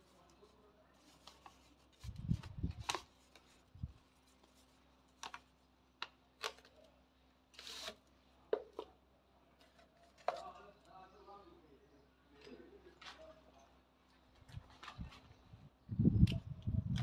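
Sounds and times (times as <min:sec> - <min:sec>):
paper sleeve rustling: 0:00.0 - 0:05.6, 0:07.5 - 0:08.0
crisp paper crinkles and clicks: 0:00.0 - 0:08.1.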